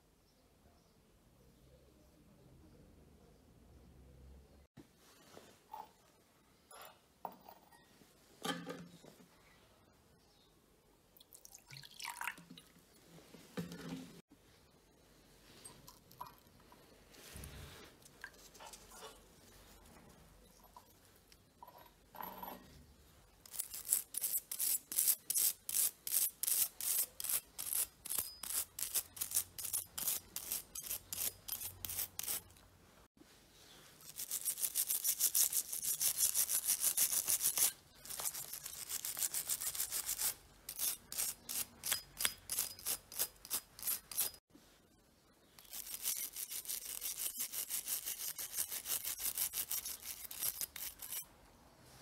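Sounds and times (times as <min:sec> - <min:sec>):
brush scrubbing wet metal: 0:45.7 - 0:51.3.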